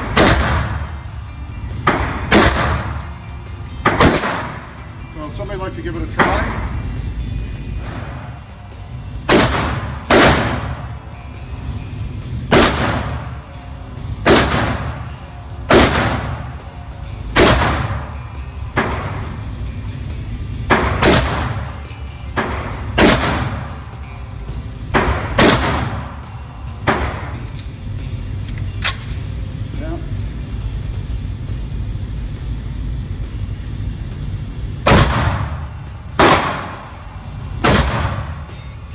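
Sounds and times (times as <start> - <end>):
rifle shots on indoor range: 0.0 - 0.8, 1.9 - 3.0, 3.8 - 4.7, 9.2 - 10.8, 12.5 - 13.3, 14.2 - 15.0, 15.7 - 16.5, 17.3 - 18.2, 20.7 - 23.8, 24.8 - 26.1, 34.8 - 35.6, 36.2 - 36.8, 37.6 - 38.4.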